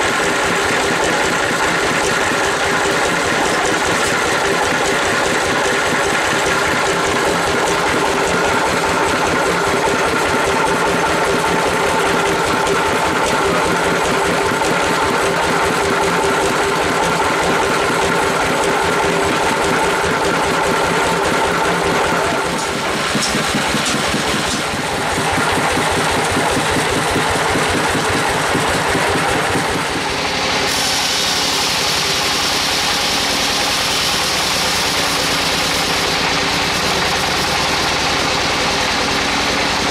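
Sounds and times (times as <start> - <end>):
sawmill engine chugging: 0.0 - 39.9.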